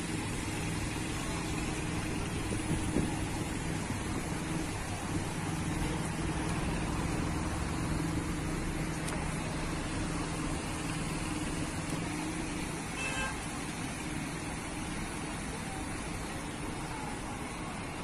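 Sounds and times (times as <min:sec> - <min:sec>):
car and engine noise: 0:00.0 - 0:18.0
short high horn toot: 0:13.0 - 0:13.4.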